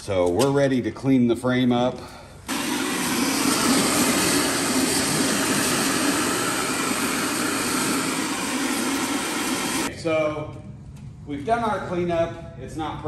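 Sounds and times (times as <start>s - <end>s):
shop vacuum sucking debris: 2.5s - 9.9s.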